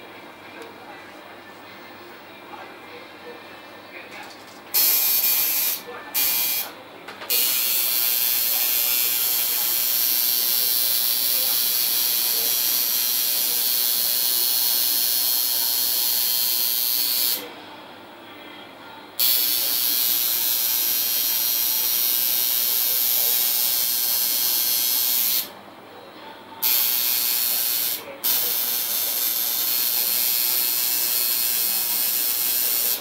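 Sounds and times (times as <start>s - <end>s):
tattoo machine buzzing: 4.7s - 17.5s, 19.2s - 25.5s, 26.6s - 33.0s.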